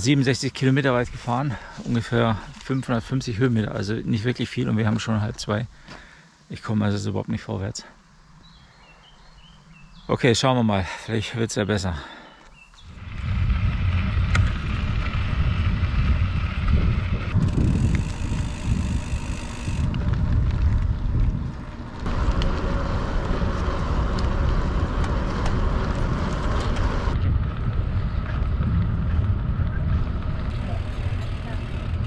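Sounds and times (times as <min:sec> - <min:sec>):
bicycle rolling noise: 0:12.6 - 0:32.0
wind buffeting microphone: 0:12.8 - 0:32.0.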